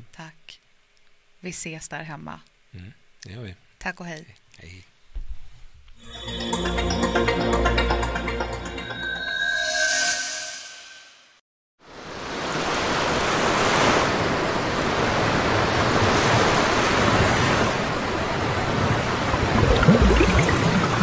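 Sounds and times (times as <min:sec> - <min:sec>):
waves breaking: 0:12.2 - 0:21.0.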